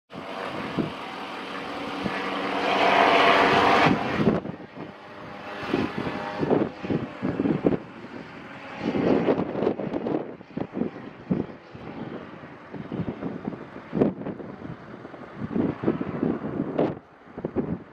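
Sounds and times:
gyroplane engine droning overhead: 0.1s - 17.9s
wind buffeting microphone: 0.1s - 17.9s.

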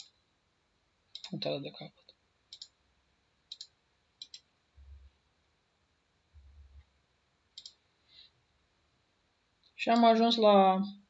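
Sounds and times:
computer mouse clicks: 1.1s - 1.4s, 2.5s - 2.8s, 3.5s - 4.5s, 7.5s - 7.8s.

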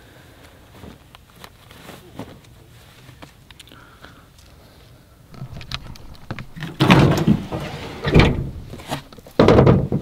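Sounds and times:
tailgate rattling clatter: 5.4s - 10.0s
tailgate clunk: 6.4s - 10.0s.

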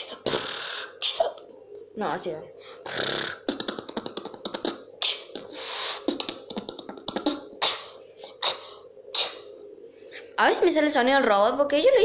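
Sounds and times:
person beatboxing: 0.0s - 1.3s, 2.8s - 9.5s.

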